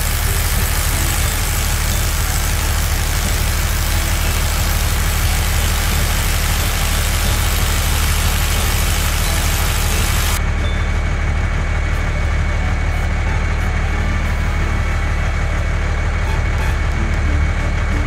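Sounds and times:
grinding hiss of drill: 0.0 - 10.4
low engine rumble: 0.0 - 18.0.

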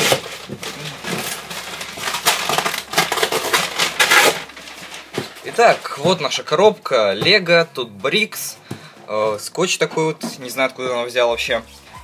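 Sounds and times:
packaging rustling and tearing: 0.0 - 6.6.

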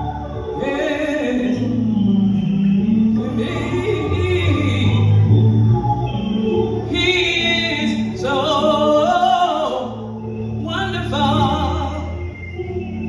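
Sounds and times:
sustained low accompaniment: 0.0 - 13.0
woman singing with vibrato: 0.0 - 13.0.

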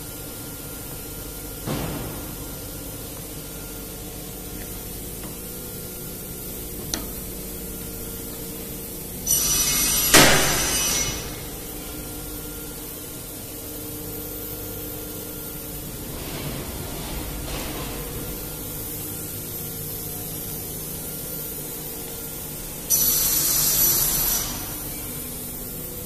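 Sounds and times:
steady machine hum: 0.0 - 26.0
loud hiss of air: 9.2 - 11.5, 22.8 - 25.2.

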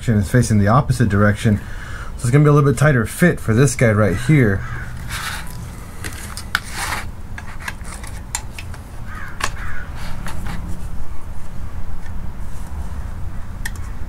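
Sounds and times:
short scraping rubs: 4.0 - 8.3, 9.9 - 11.0
crow cawing: 4.2 - 5.5, 9.0 - 10.0.

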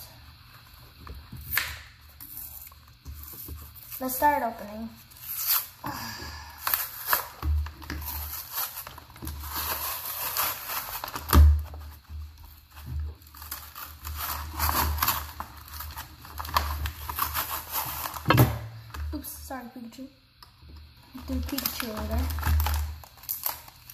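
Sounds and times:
cardboard ripping and plastic crinkling: 0.0 - 19.3, 21.0 - 23.9.

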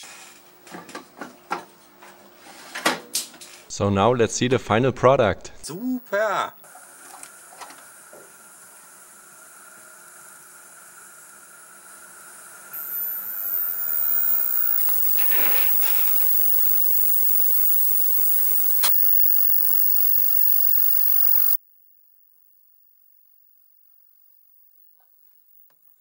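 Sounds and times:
crackle: 12.8 - 21.6
high-pitched television whistle: 12.8 - 21.6
sharp click: 12.8 - 21.6.

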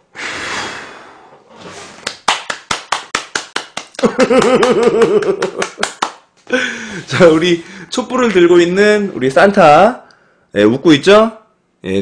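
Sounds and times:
breath blowing out candles: 0.0 - 1.4
hand clapping: 2.0 - 6.3
man laughing: 4.0 - 7.6.

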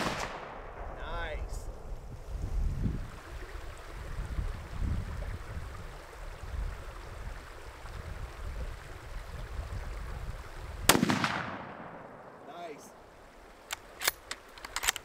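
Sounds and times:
rifle shot with echo: 0.0 - 1.2, 10.9 - 12.5
wind buffeting microphone: 0.0 - 11.4.

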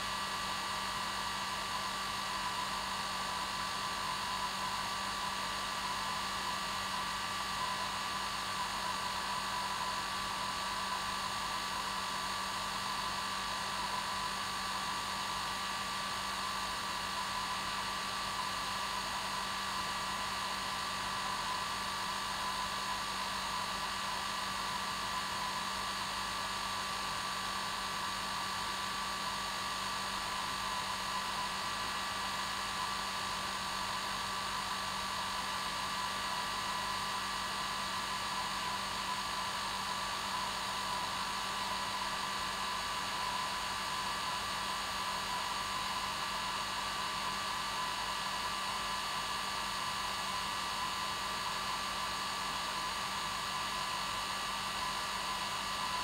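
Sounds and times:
hair dryer running: 16.0 - 56.0.

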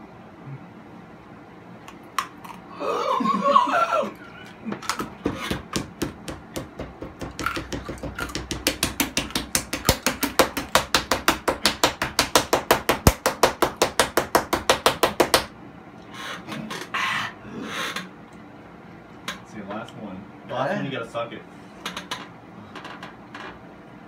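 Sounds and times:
rapid pounding knocks: 5.0 - 15.5.

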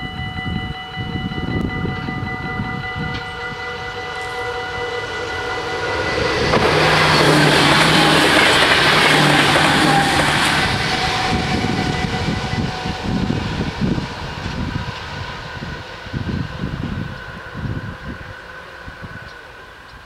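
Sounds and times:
level crossing bells ringing: 0.0 - 13.0
electric train passing: 0.0 - 20.0.

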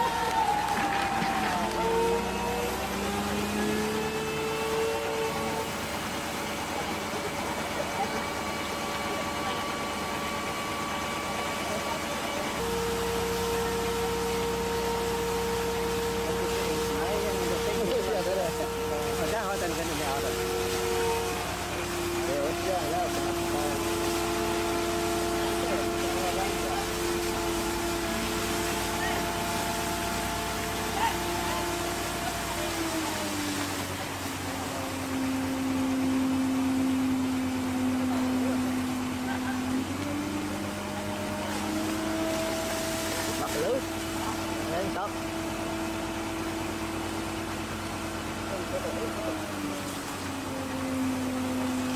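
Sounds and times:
excavator diesel engine humming: 0.0 - 51.9
high-pressure water jet hissing: 11.7 - 36.0, 37.3 - 51.9.

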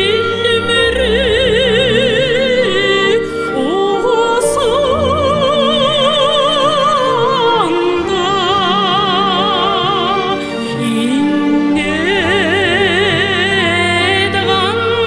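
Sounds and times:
instrumental accompaniment: 0.0 - 15.0
woman singing operatically: 0.0 - 15.0.

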